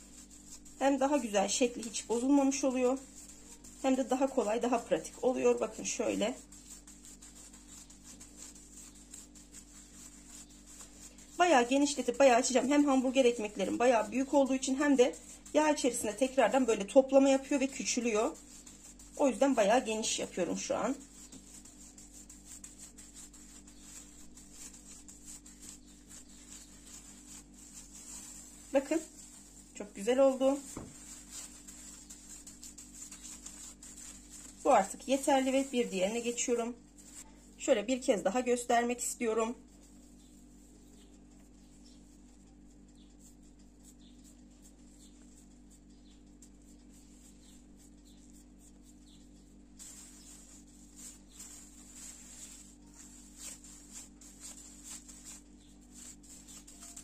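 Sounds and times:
hands patting minced meat: 0.0s - 37.2s, 43.2s - 57.0s
low steady hum: 0.0s - 57.0s
plastic bag crinkling: 17.5s - 36.4s.

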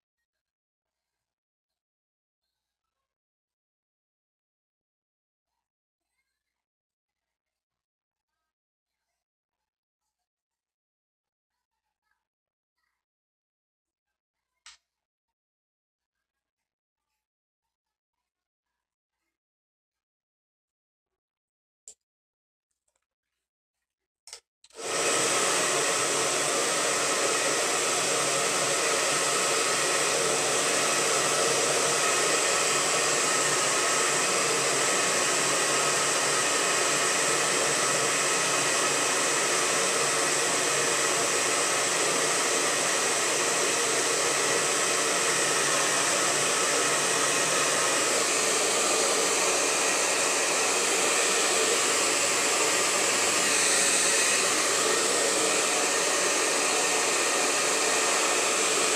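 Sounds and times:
hair dryer blowing: 24.7s - 58.9s.

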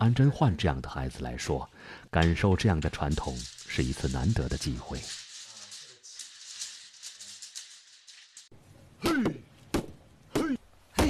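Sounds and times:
faint dry rattle: 2.8s - 8.5s.

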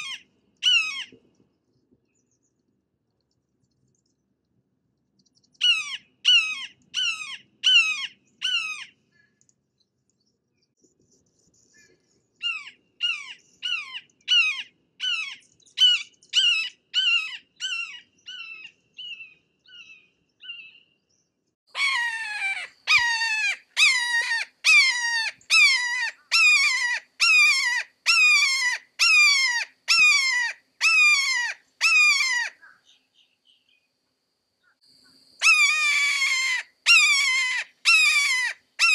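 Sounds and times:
hawk calling: 21.8s - 32.8s, 35.4s - 38.9s.

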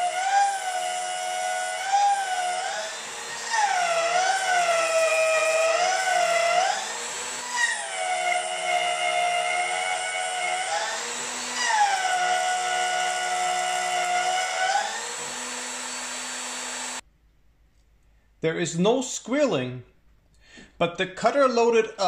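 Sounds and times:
milling machine whine: 0.0s - 17.0s.

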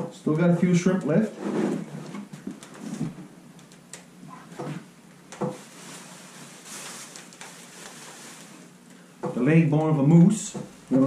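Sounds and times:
plastic bags rustling: 5.5s - 9.1s.

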